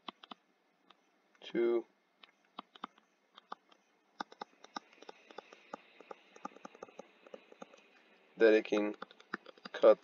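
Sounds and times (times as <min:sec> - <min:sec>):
stylus tapping on tablet screen: 0:02.2 - 0:07.9, 0:08.7 - 0:09.8.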